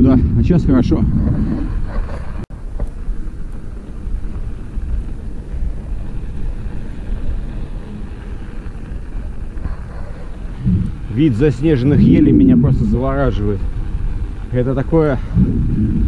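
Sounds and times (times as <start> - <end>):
bicycle tyres on snow: 0.0 - 16.0
wind on microphone: 0.0 - 16.0.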